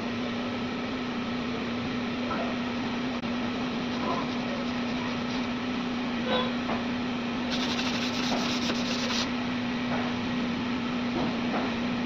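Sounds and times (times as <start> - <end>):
steady mechanical hum: 0.0 - 12.0
hand sanding body filler: 3.6 - 5.6, 7.5 - 9.3.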